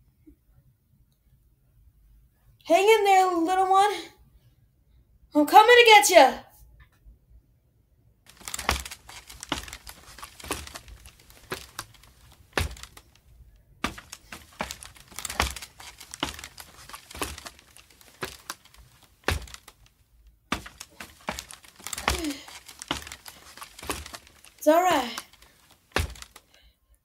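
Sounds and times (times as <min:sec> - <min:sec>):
ladder knocks and creaks: 0:08.3 - 0:13.2, 0:13.8 - 0:19.9, 0:20.5 - 0:26.4.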